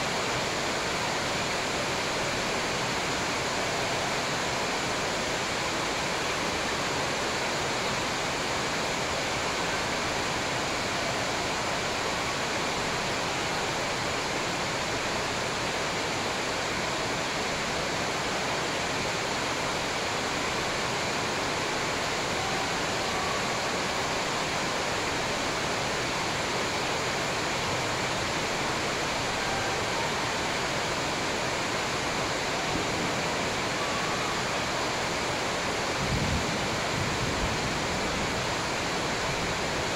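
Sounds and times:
steady rushing hiss: 0:00.0 - 0:39.9.

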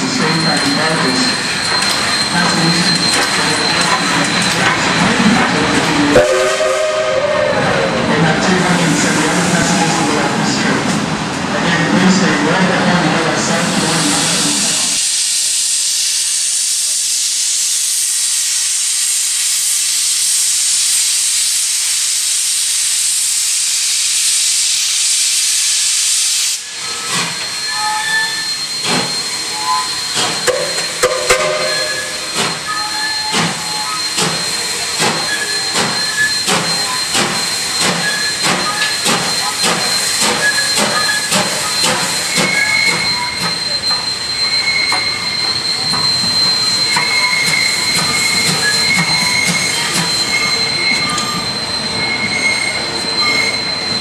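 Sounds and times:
steam locomotive blowing off steam: 0:00.0 - 0:11.4, 0:12.7 - 0:54.0
short high squeals: 0:26.9 - 0:54.0.

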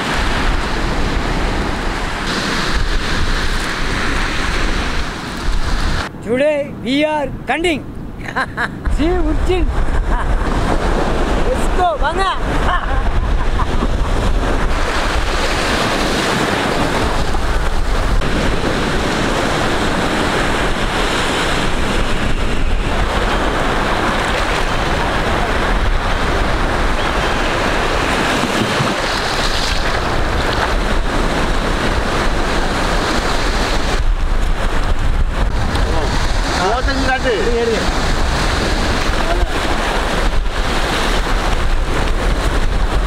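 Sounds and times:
surf washing and breaking: 0:00.0 - 0:43.0
wind buffeting microphone: 0:00.0 - 0:43.0.

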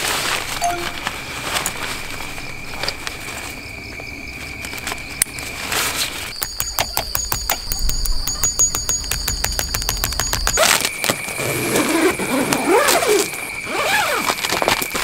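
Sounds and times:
steady high thin tone: 0:00.6 - 0:01.4.

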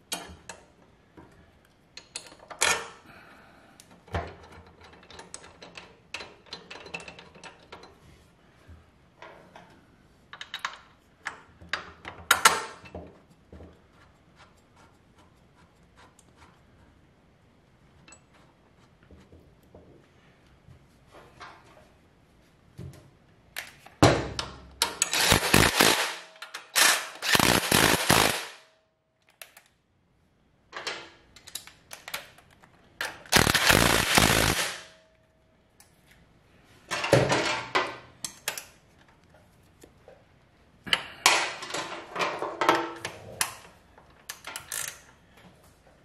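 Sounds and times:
impact driver hammering: 0:33.4 - 0:34.8.

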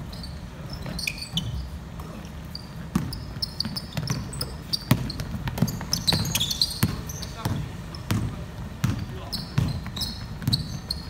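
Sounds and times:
sneakers squeaking: 0:00.0 - 0:11.0
basketball bouncing on wooden floor: 0:02.9 - 0:11.0.

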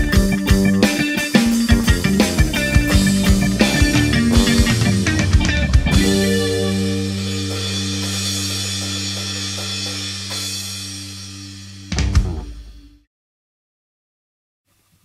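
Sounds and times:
rock band sustained chord: 0:00.0 - 0:12.2
hard drum hit: 0:01.8 - 0:06.4, 0:11.9 - 0:12.8.

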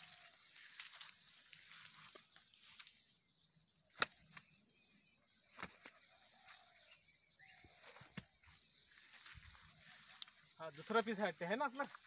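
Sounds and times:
fish slapping on grass: 0:00.0 - 0:03.0, 0:05.5 - 0:06.6
grass rustling: 0:00.0 - 0:03.2, 0:03.9 - 0:12.0.

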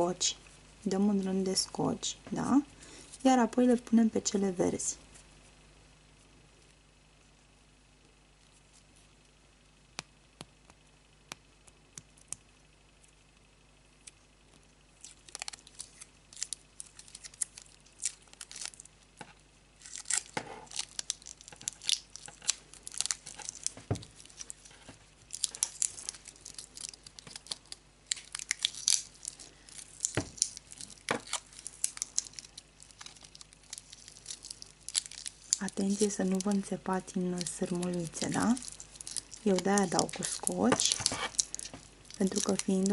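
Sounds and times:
tape crackling and tearing: 0:15.0 - 0:42.9.

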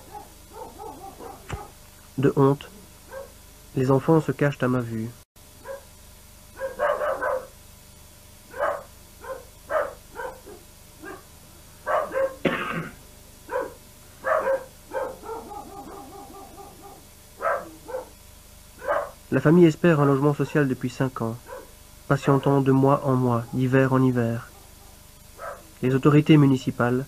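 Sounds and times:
dog whimpering yelps: 0:00.0 - 0:01.7, 0:13.6 - 0:18.1
dog barking in short yaps: 0:00.1 - 0:01.8, 0:06.6 - 0:07.5, 0:08.5 - 0:11.2, 0:11.9 - 0:12.4, 0:13.5 - 0:18.1, 0:18.8 - 0:19.2.

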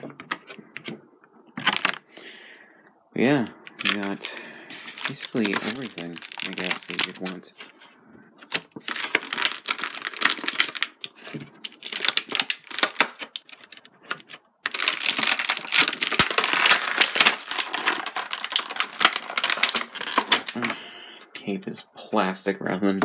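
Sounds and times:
plastic packaging crackling: 0:01.6 - 0:02.2, 0:03.8 - 0:07.7, 0:08.4 - 0:20.8.

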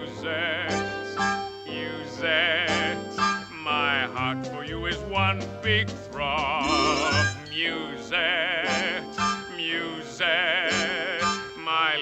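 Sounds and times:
orchestral music: 0:00.0 - 0:12.0.

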